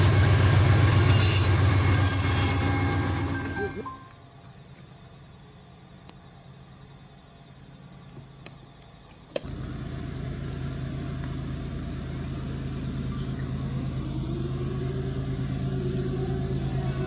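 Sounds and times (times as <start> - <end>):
diesel locomotive engine throbbing: 0.0 - 4.0, 9.4 - 17.0
higher rising tone: 13.0 - 17.0.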